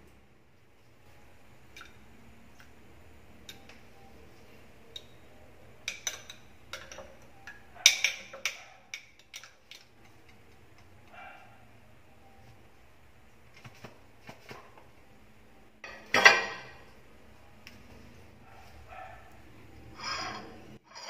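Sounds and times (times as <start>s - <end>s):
spoon clinking against glass: 5.8s - 9.9s.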